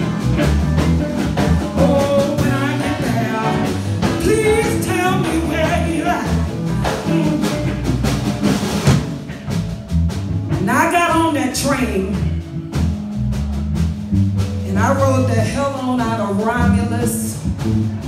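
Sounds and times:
person singing: 0.0 - 7.8
bass: 0.0 - 18.0
drums: 0.0 - 18.0.

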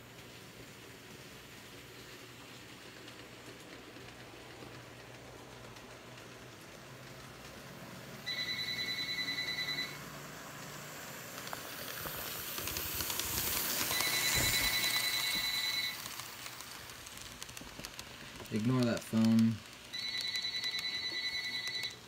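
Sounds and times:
model trains rumbling: 0.0 - 21.8
phone ringing: 8.3 - 10.0, 13.9 - 16.0, 19.9 - 22.0.

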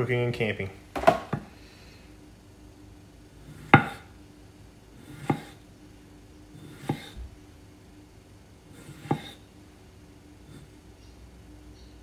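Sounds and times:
knife knocking on cutting board: 3.8 - 4.0
knife slicing tomato: 5.0 - 5.6, 6.5 - 7.2, 8.7 - 9.4.

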